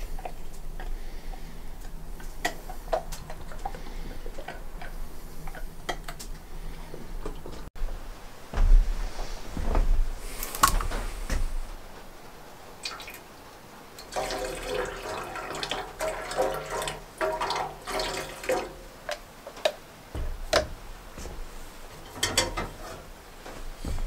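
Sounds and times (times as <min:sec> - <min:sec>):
pot and bottle clinking: 0:14.0 - 0:18.9
water pouring into metal pot: 0:14.0 - 0:18.9.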